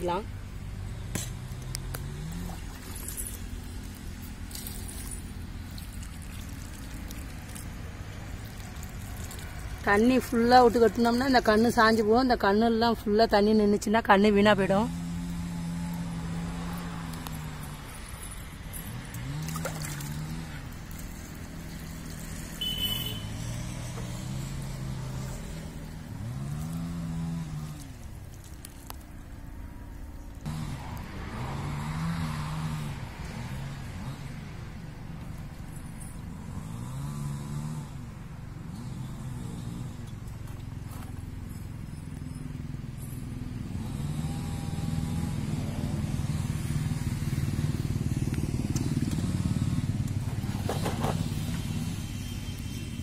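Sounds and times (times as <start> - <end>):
water splashing onto soil: 5.6 - 10.1, 19.4 - 22.3.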